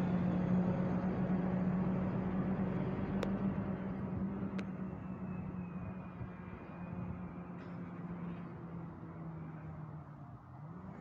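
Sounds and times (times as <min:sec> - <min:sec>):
train hum and rumble: 0:00.0 - 0:09.8.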